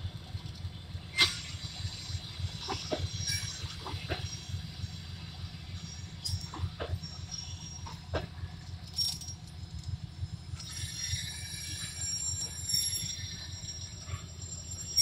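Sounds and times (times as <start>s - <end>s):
train coaches rumbling past: 0.0s - 15.0s
high metallic squeal: 1.2s - 8.1s, 10.4s - 15.0s.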